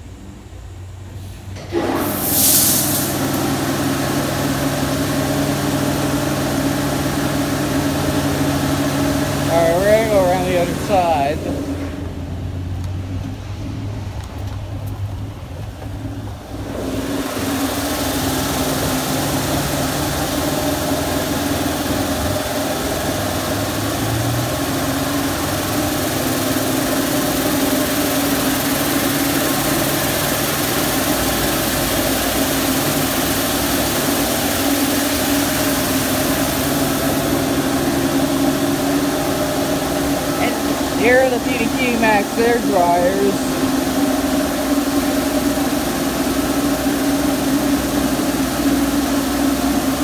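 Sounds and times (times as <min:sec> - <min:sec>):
pump machinery hum: 0:00.0 - 0:50.0
water jets spraying car: 0:01.8 - 0:50.0.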